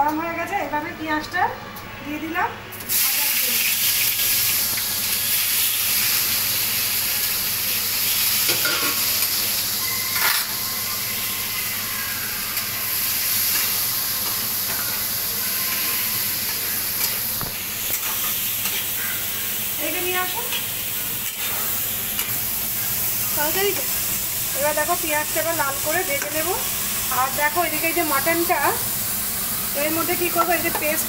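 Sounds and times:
onions sizzling in oil: 2.8s - 31.0s.

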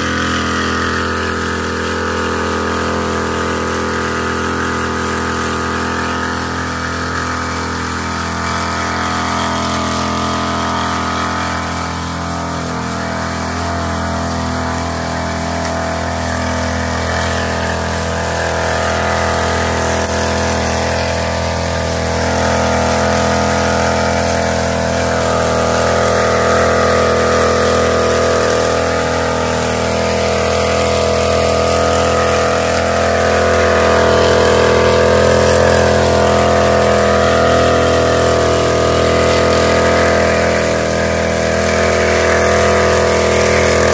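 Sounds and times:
sprayer small engine running: 0.0s - 43.9s.

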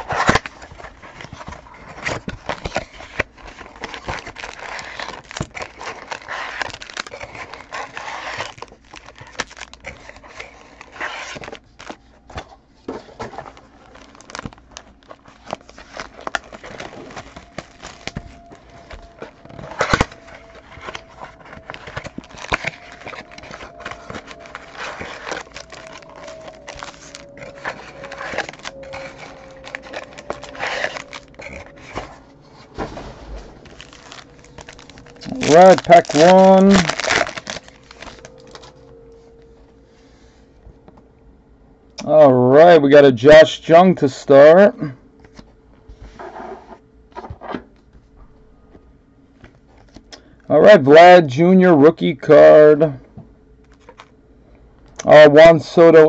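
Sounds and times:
plastic wrap crinkling and tearing: 0.0s - 39.6s, 53.7s - 54.1s.

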